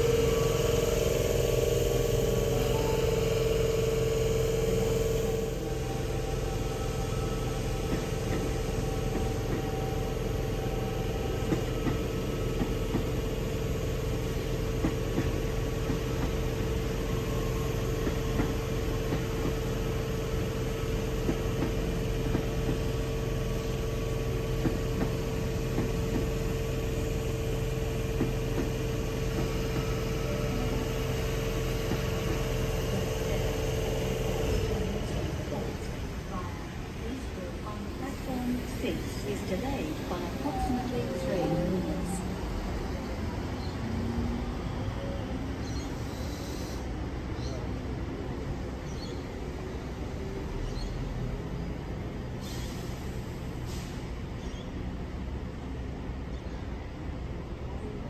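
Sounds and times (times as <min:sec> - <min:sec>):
low hum: 0:00.0 - 0:12.9
electric train whine: 0:00.0 - 0:58.0.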